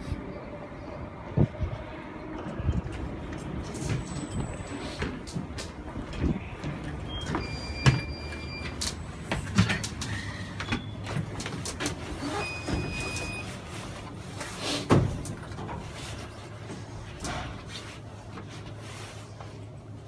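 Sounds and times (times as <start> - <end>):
train low hum: 0.0 - 20.0
footsteps: 2.4 - 12.1.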